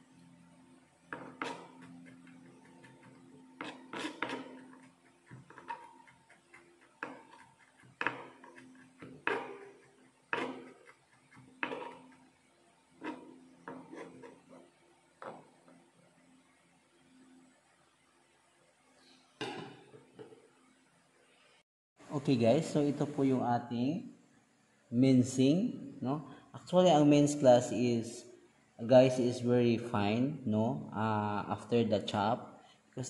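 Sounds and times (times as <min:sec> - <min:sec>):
knife chopping on plastic board: 0:01.1 - 0:12.1.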